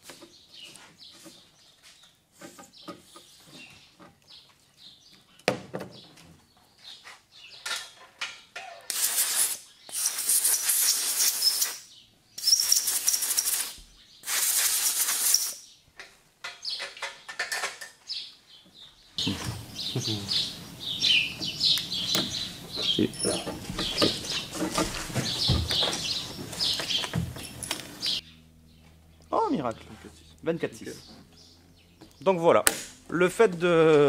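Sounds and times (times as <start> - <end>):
compressed air blasts: 8.9 - 15.6.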